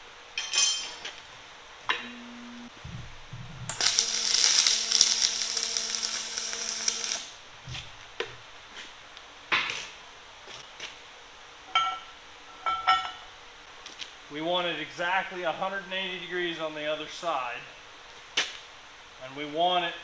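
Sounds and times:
welding arc crackling: 2.6 - 8.0.

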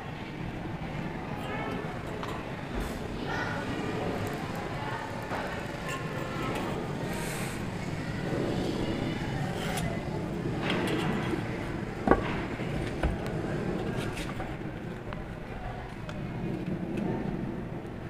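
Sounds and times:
outdoor background noise: 0.0 - 18.0.

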